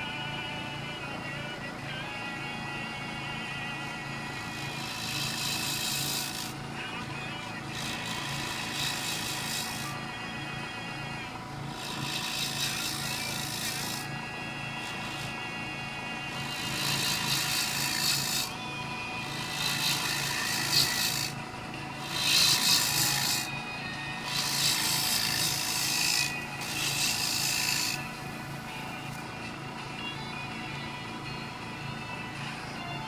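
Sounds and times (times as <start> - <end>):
wood lathe humming: 0.0 - 33.0
gouge scraping wood: 4.4 - 6.6, 7.6 - 10.0, 11.7 - 14.2, 14.8 - 15.4, 16.3 - 18.6, 19.2 - 28.7.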